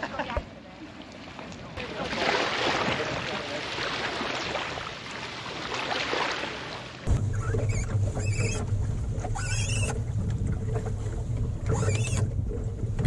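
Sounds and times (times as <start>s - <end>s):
wind and water on hull: 0.0s - 13.0s
small waves washing on beach: 0.8s - 7.1s
lines squeaking: 7.1s - 10.9s, 11.6s - 13.0s.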